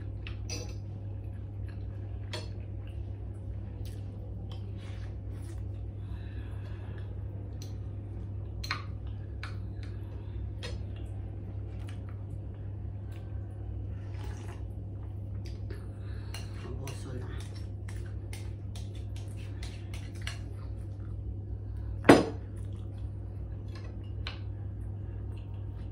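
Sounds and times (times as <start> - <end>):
steady low hum: 0.0 - 25.9.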